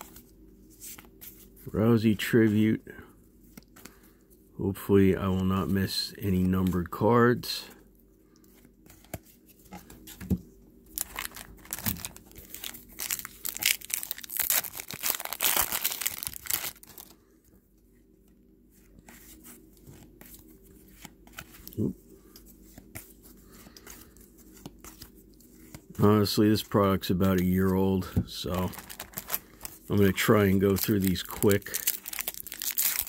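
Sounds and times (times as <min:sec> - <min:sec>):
cards being handled: 0:08.4 - 0:10.4, 0:18.3 - 0:33.0
foil wrapper crinkling: 0:11.0 - 0:17.2, 0:28.3 - 0:33.0.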